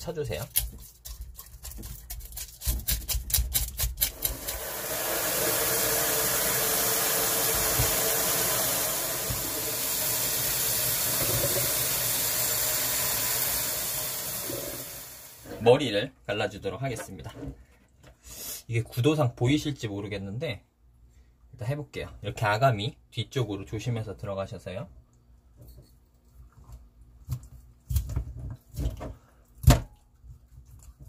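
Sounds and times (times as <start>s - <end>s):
knife scraping fish scales: 0.5s - 4.4s
running tap water: 4.0s - 15.6s.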